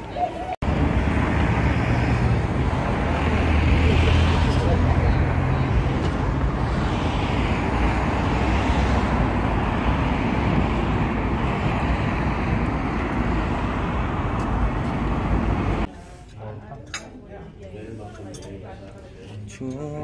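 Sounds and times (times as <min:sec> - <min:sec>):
road traffic rumble: 0:00.0 - 0:15.9.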